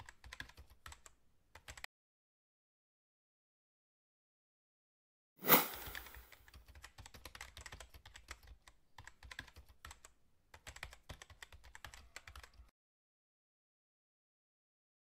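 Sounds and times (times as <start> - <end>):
keyboard typing clicks: 0.0 - 1.9, 5.8 - 12.7
sharp transition hit: 5.4 - 6.2.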